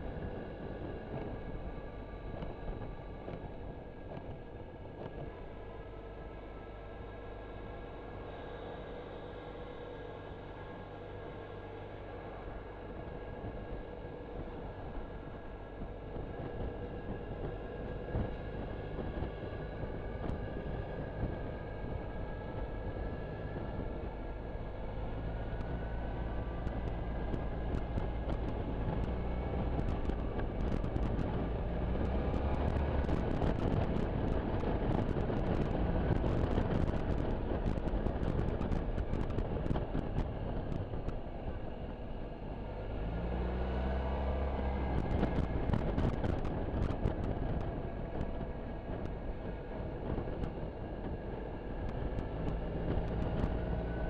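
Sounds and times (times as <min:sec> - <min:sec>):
wind rushing over microphone: 0:11.9 - 0:54.0.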